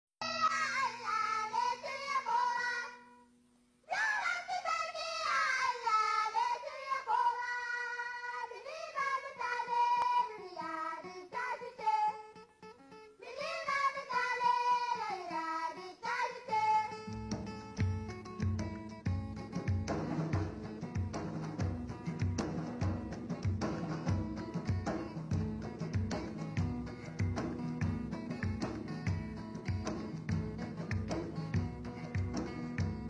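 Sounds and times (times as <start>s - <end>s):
girls choir singing: 0.2s - 3.0s, 3.9s - 12.2s, 13.2s - 17.0s.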